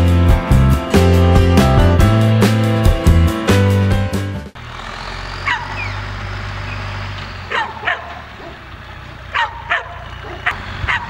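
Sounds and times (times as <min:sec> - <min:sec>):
diesel engine running: 0:00.0 - 0:11.0
dog barking: 0:05.4 - 0:05.9, 0:07.5 - 0:08.6, 0:09.3 - 0:11.0.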